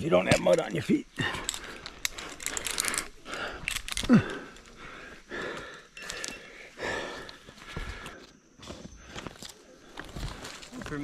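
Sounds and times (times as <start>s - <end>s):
rope rustling: 0.0s - 11.0s
climbing hardware clicking: 0.2s - 4.8s
person breathing hard: 1.1s - 10.4s.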